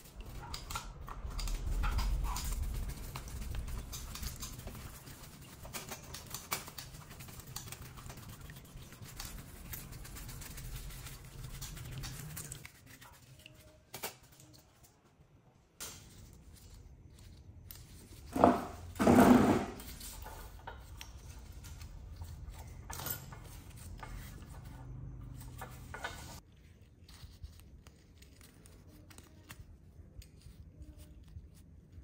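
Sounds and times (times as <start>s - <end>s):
brush scrubbing engine parts: 0.0s - 13.9s, 16.4s - 26.4s.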